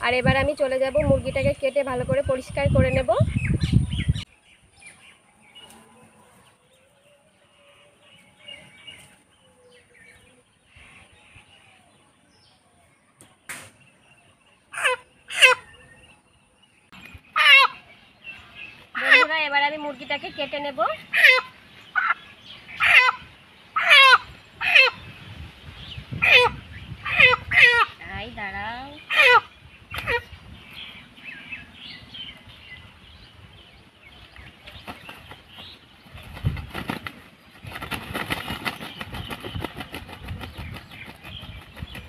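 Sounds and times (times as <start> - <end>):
chicken squawking: 14.8 - 15.7, 17.4 - 17.8, 21.1 - 22.2, 22.8 - 25.0, 26.2 - 28.0, 29.1 - 30.3
wings flapping: 34.7 - 42.0.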